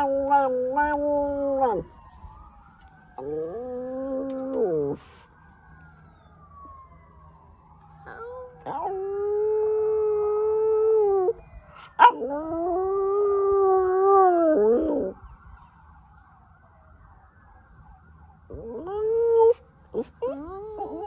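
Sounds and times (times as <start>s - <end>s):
dog howling: 0.0s - 2.0s, 3.2s - 5.2s, 8.0s - 15.2s, 18.5s - 21.0s.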